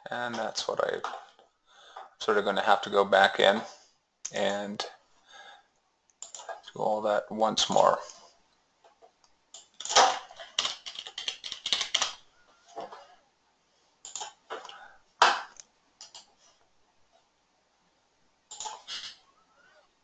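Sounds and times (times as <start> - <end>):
keyboard typing: 6.2 - 6.6, 9.6 - 12.2, 14.0 - 14.7, 15.3 - 16.3, 18.5 - 19.2.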